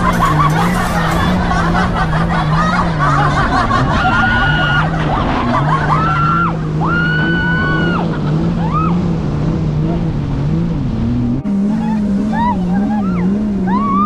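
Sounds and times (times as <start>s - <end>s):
person laughing: 0.0s - 6.5s, 11.6s - 14.0s
jet ski engine running: 0.0s - 14.0s
water rushing: 0.0s - 14.0s
high held squeals: 3.9s - 9.1s.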